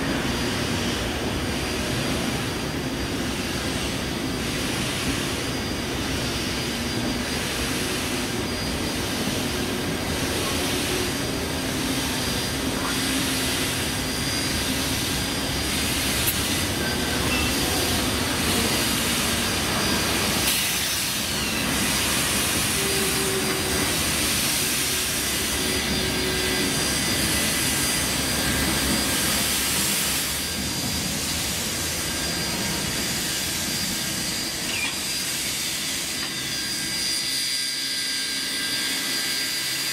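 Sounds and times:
steam locomotive passing: 0.0s - 39.9s
hiss of escaping steam: 7.4s - 36.6s.

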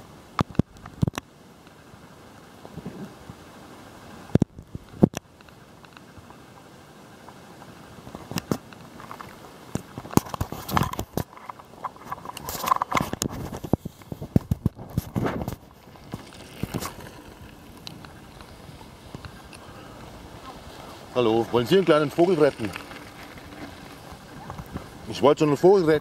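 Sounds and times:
shoes scraping on gravel: 12.1s - 26.0s.

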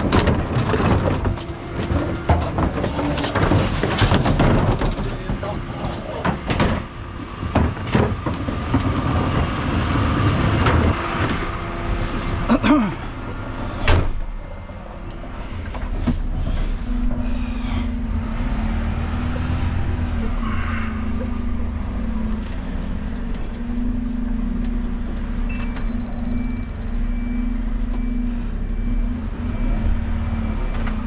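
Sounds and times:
wheelie bins knocking and clanking: 0.0s - 9.6s
diesel engine from inside cab: 0.0s - 31.0s
truck running noise: 0.0s - 31.0s.

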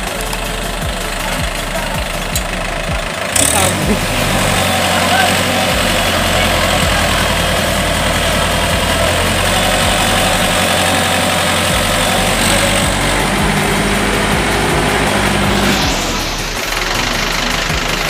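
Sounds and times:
hydraulics raising trailer: 0.0s - 18.0s
tractor diesel engine running: 0.0s - 18.0s.

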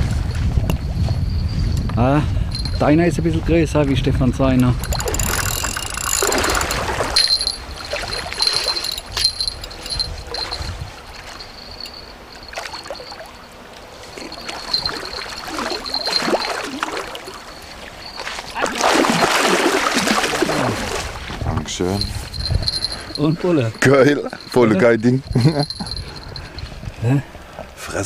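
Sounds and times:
thin high steady tone: 2.5s - 3.1s, 4.8s - 18.7s, 21.7s - 26.8s
water lapping against a boat: 14.0s - 21.5s
rush of water: 14.3s - 21.4s.

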